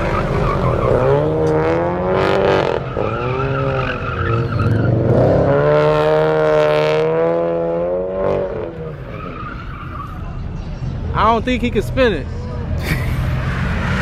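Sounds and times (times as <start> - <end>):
car engine revving hard: 0.0 - 8.9.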